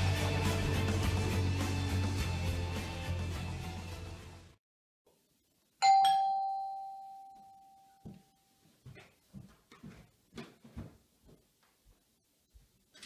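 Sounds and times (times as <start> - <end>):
doorbell chime: 5.8 - 8.5
footsteps on floor: 8.0 - 12.8.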